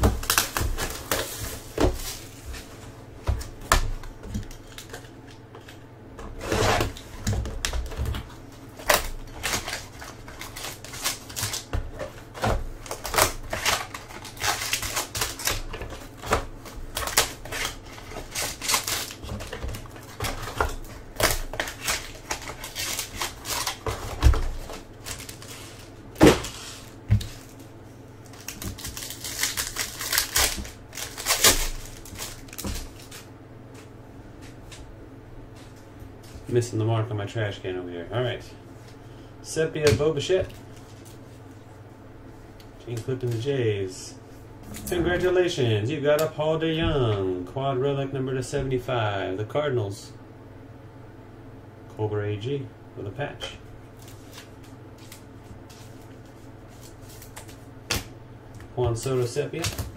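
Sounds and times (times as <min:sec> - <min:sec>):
plastic card pack tearing open: 0:00.0 - 0:02.2, 0:08.8 - 0:12.2, 0:12.8 - 0:26.6, 0:28.3 - 0:33.3
plastic shrink wrap crinkling: 0:08.8 - 0:33.3.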